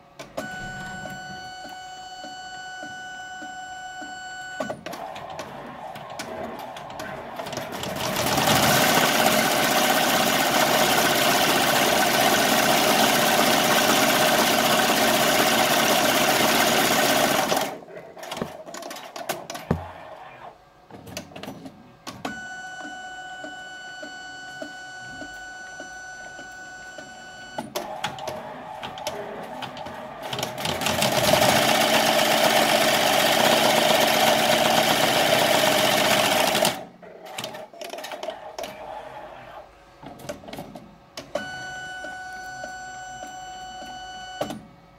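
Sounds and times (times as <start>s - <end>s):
embroidery machine stitching: 4.9s - 19.7s, 27.8s - 38.7s.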